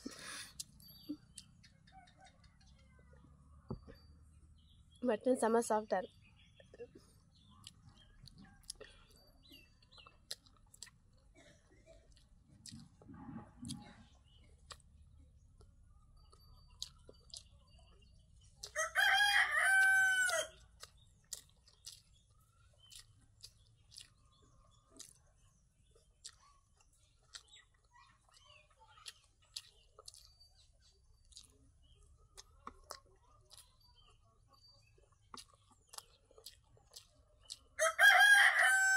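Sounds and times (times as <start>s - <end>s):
person eating and chewing: 0.0s - 1.6s, 6.8s - 38.4s
rooster crowing: 18.8s - 20.5s, 37.8s - 38.9s.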